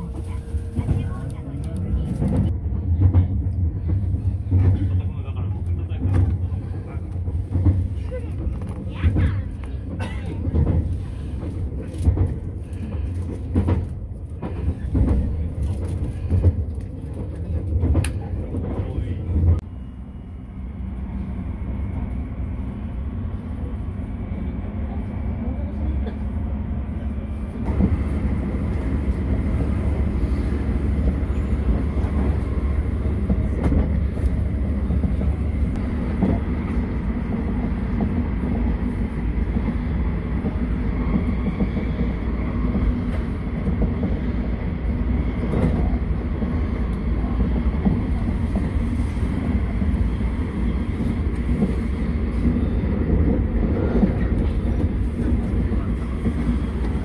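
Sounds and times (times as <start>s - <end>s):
train wheels rumbling on rails: 0.0s - 57.0s.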